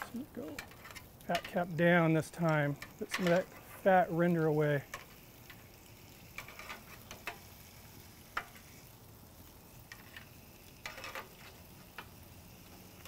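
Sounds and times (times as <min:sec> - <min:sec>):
ribs sizzling on grill: 0:00.0 - 0:13.0
metal tongs clicking and scraping: 0:00.5 - 0:01.7, 0:02.4 - 0:03.8.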